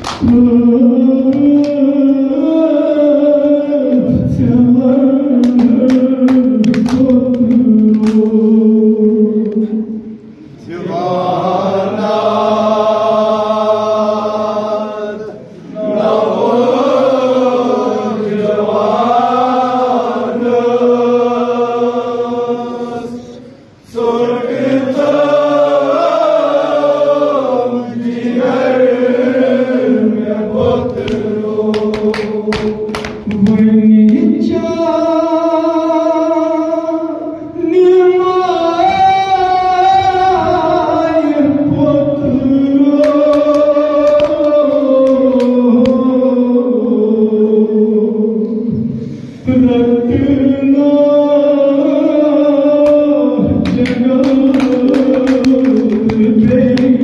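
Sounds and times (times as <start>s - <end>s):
men singing a lament: 0.0s - 57.0s
chest-beating slaps: 5.4s - 8.4s.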